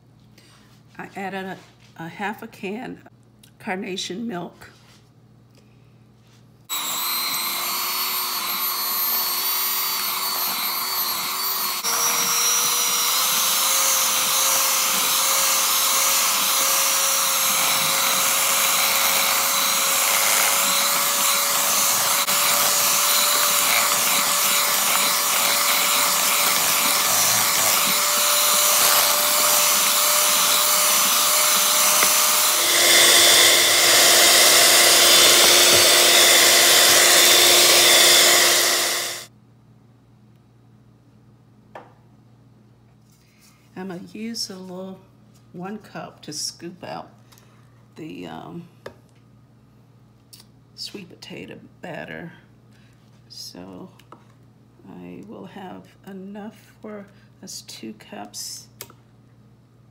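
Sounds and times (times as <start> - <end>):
electric hand mixer whining: 6.7 - 39.3.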